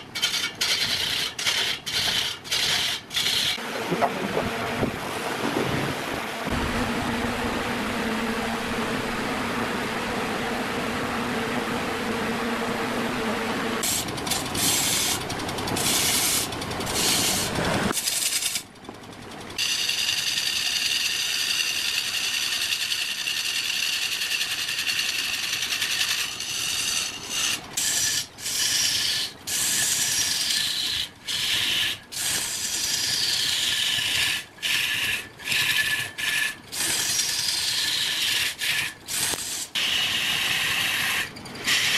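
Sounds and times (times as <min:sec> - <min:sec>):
turning tool scraping wood: 0:00.0 - 0:04.9, 0:13.8 - 0:18.7, 0:19.6 - 0:41.9
wood lathe spinning: 0:00.0 - 0:18.7, 0:19.6 - 0:41.9.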